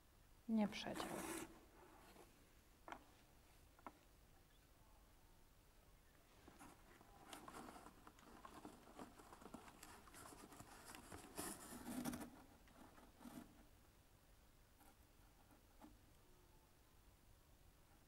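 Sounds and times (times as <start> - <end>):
string rustling through cardboard: 0.8 - 3.9, 6.3 - 13.8.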